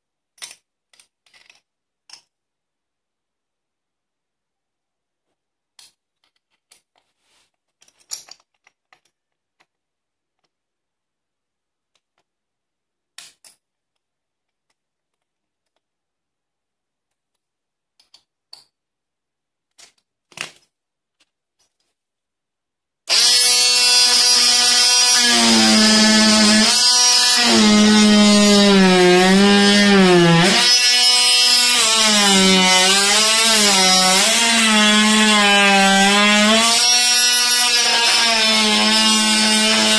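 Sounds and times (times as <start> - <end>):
oscillating multi-tool buzzing: 23.1 - 39.9.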